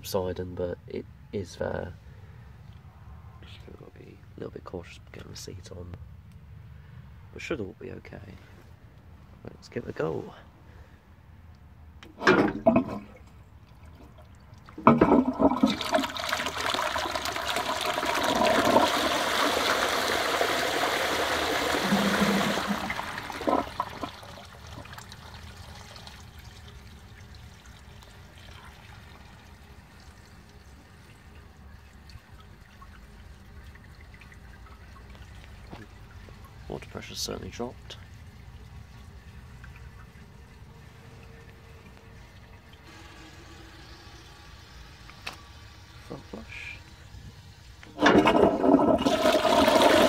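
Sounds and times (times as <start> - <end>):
water trickling: 12.6 - 47.6
toilet flush water rushing: 14.7 - 32.6, 40.7 - 45.0, 47.9 - 50.0.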